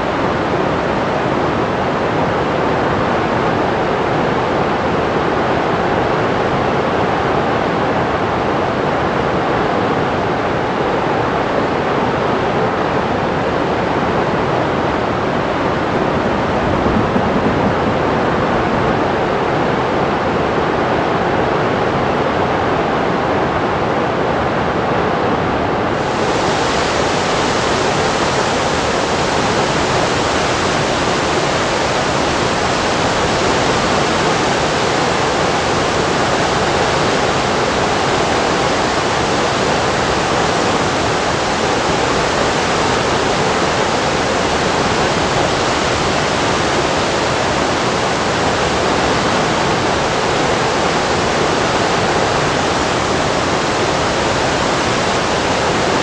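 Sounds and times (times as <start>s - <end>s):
floodwater rushing: 13.7s - 19.8s.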